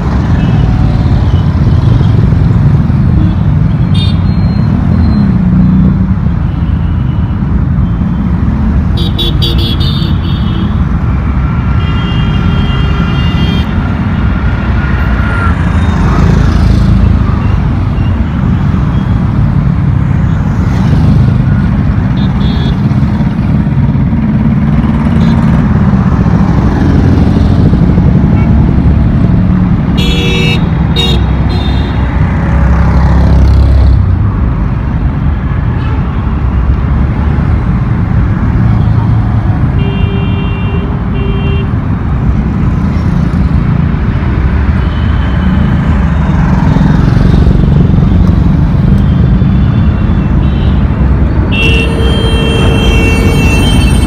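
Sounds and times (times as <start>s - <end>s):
heavy road traffic rumble: 0.0s - 54.0s
vehicle horn toots: 51.5s - 54.0s.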